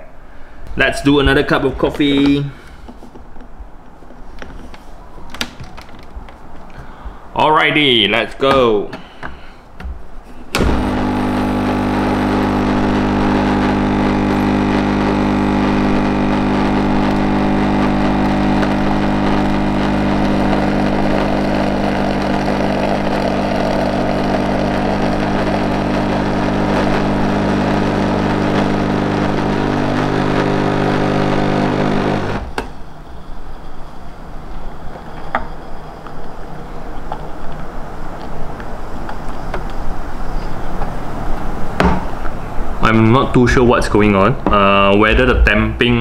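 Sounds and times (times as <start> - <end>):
espresso machine pump buzzing: 10.6 - 32.5.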